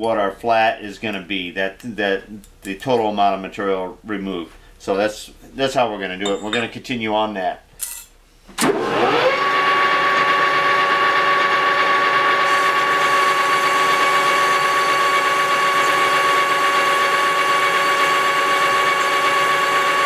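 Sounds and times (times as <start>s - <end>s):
metal lathe whining: 8.7s - 20.0s.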